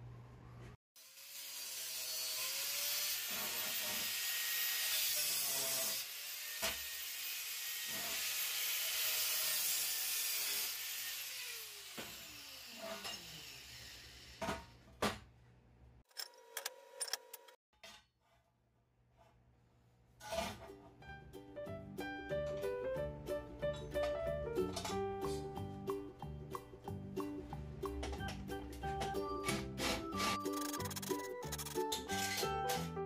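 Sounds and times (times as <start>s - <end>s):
angle grinder cutting steel: 1.0s - 14.5s, 29.4s - 32.9s.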